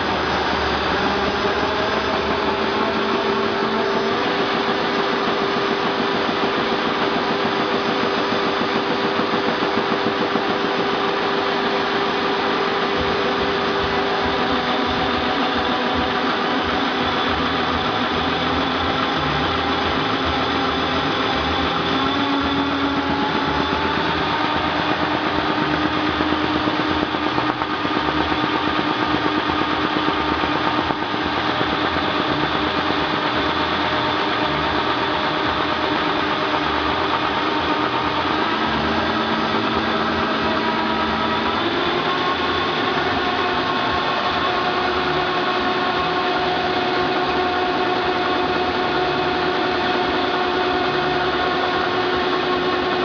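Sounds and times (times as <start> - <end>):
machine whine: 0.0 - 53.0
printing press clatter: 1.9 - 18.6.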